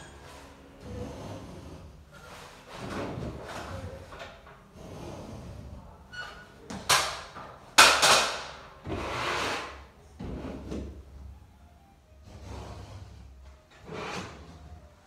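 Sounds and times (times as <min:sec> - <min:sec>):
smoothing tool scraping wallpaper: 0:00.0 - 0:04.1, 0:04.7 - 0:06.1, 0:08.8 - 0:10.8, 0:12.2 - 0:15.0.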